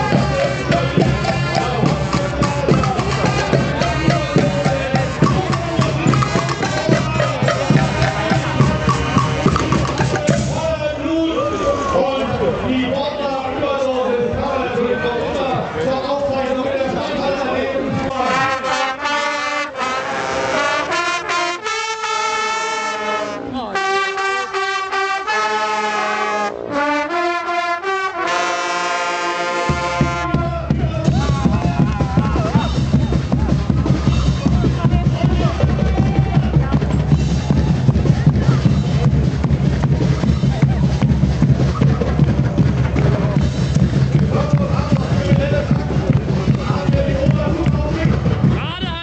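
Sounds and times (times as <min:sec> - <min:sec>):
low thumping beat: 0:00.0 - 0:10.8, 0:29.7 - 0:49.0
bass drums: 0:00.0 - 0:11.0, 0:29.6 - 0:49.0
marching band playing: 0:00.0 - 0:11.9, 0:17.3 - 0:49.0.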